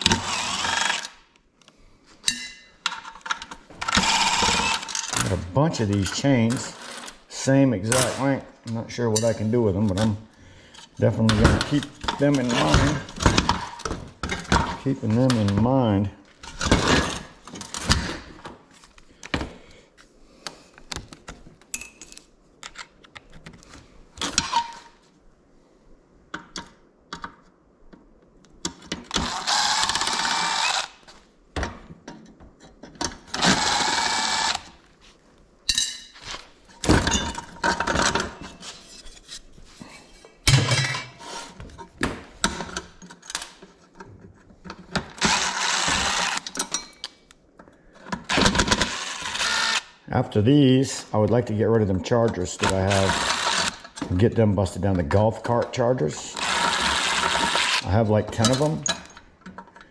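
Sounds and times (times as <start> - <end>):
handheld power tool bursts: 0.0 - 1.2, 29.1 - 31.1, 33.3 - 34.8, 45.1 - 46.6, 48.3 - 49.9, 52.6 - 54.0, 56.3 - 57.9
metal parts clanking: 2.2 - 7.2, 24.2 - 25.0, 35.7 - 38.9, 56.3 - 59.9.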